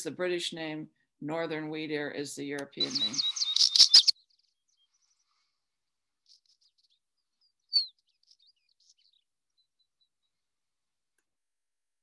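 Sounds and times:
bird song with chirps and clicks: 0:02.6 - 0:05.6, 0:06.2 - 0:10.4.

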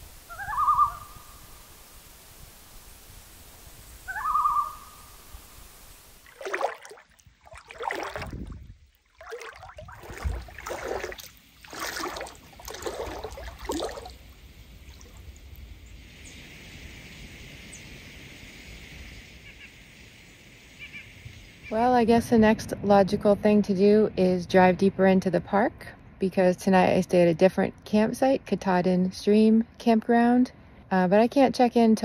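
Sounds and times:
loons calling: 0:00.3 - 0:01.6, 0:04.0 - 0:05.2.

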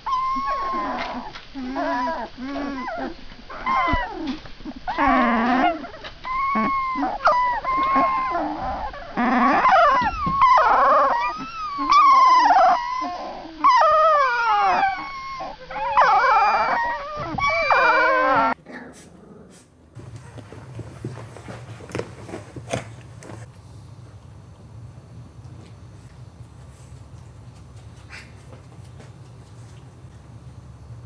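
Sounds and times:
puppies whimpering and squealing: 0:00.0 - 0:18.6.

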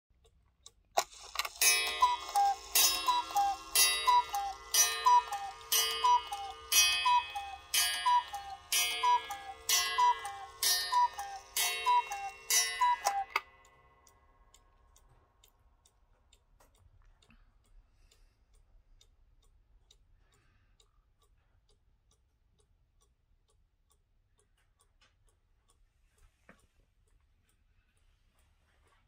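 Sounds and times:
clock mechanism click: 0:00.2 - 0:16.0
cuckoo clock call: 0:01.0 - 0:14.2
sharp clock strike: 0:01.1 - 0:14.2.

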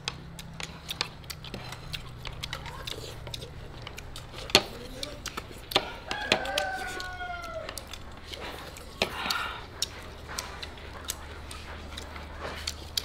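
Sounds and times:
utensils clicking on ceramic plates: 0:00.0 - 0:13.0
rooster crowing: 0:05.8 - 0:08.1.

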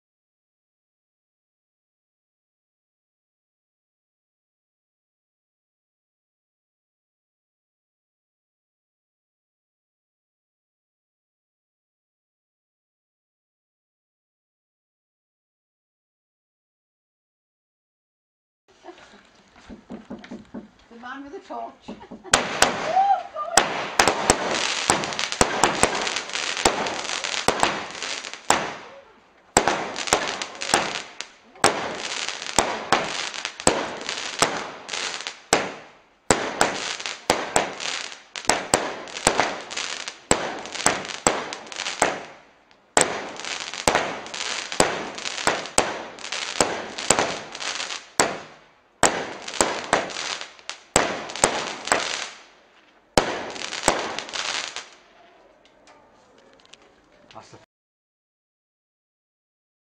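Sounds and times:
dense firework crackling: 0:18.7 - 0:55.1
firework launch reports: 0:21.0 - 0:42.4.

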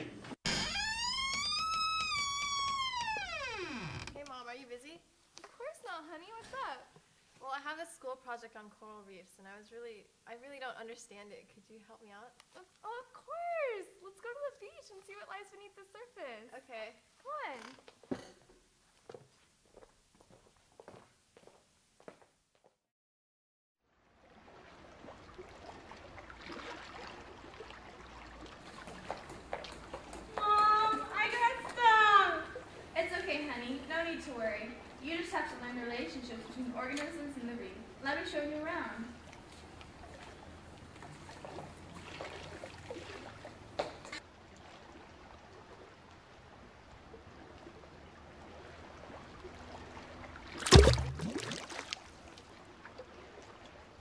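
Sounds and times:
water trickling: 0:24.0 - 0:54.0.

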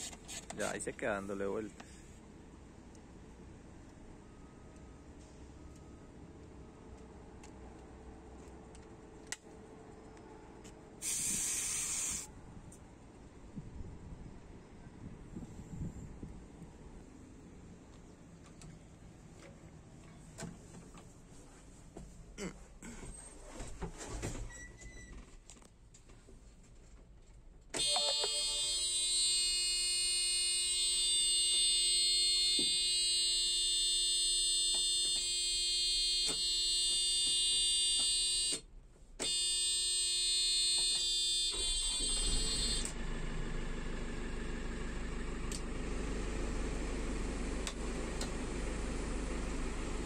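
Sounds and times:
electronic warning buzzer: 0:27.8 - 0:38.6, 0:39.2 - 0:43.0
engine running: 0:42.9 - 0:50.0.

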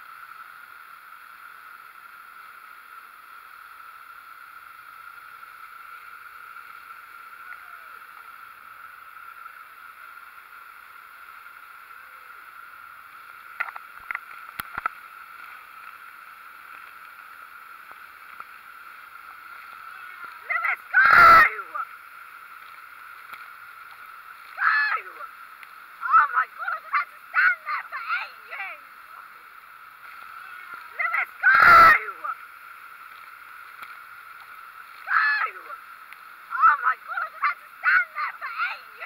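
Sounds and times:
waterfall rushing: 0:19.0 - 0:22.0, 0:24.3 - 0:32.5.

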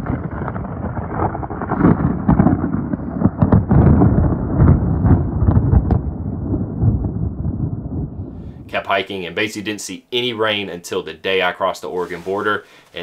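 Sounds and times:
rumbling thunder: 0:00.0 - 0:09.2.

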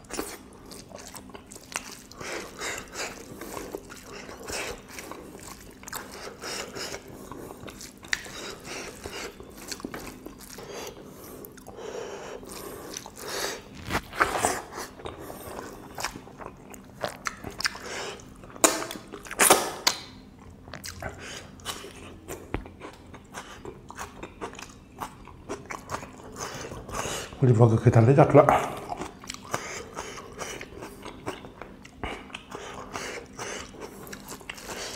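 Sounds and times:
chewing and mouth smacks: 0:00.0 - 0:11.8, 0:12.4 - 0:26.9, 0:28.6 - 0:34.9.

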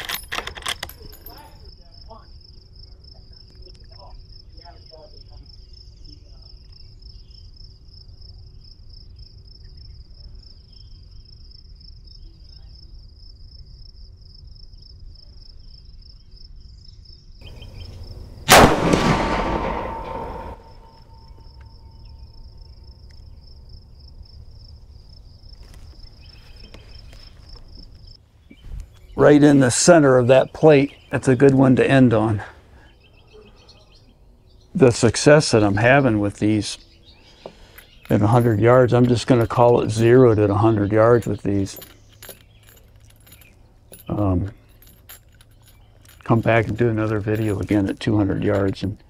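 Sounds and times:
insects chirring: 0:00.0 - 0:49.0
rifle shot echoing: 0:18.4 - 0:21.4.

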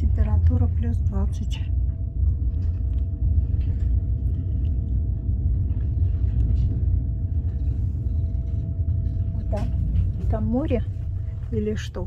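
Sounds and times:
faint steady hum: 0:00.0 - 0:12.0
train running rumble: 0:00.0 - 0:12.0.

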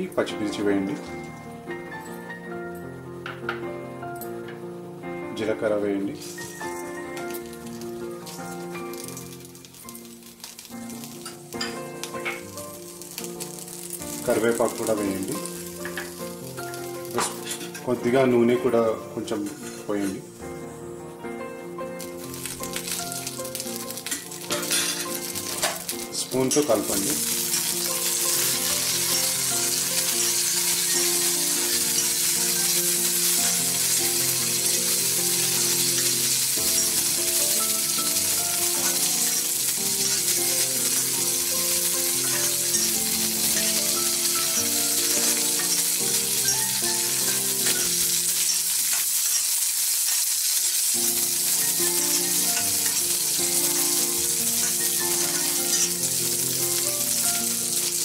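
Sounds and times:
instrumental background music: 0:00.0 - 0:58.0
spices sizzling in hot oil: 0:05.4 - 0:58.0
steel spoon stirring: 0:42.2 - 0:50.8, 0:54.6 - 0:56.1.

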